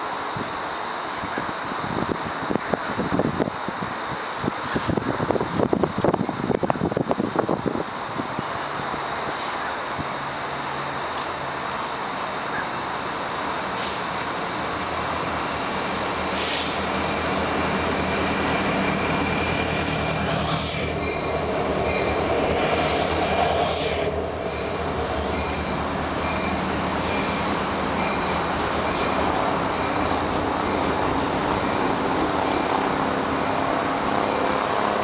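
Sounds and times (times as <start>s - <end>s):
train cars rolling on rails: 0.0s - 35.0s
high-pitched wheel squeal: 11.4s - 30.2s
sharp wheel screeches: 11.5s - 30.0s.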